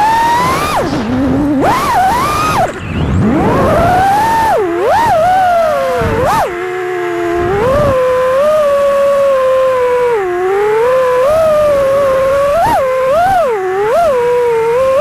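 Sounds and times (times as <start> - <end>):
drone motors whining: 0.0 - 15.0.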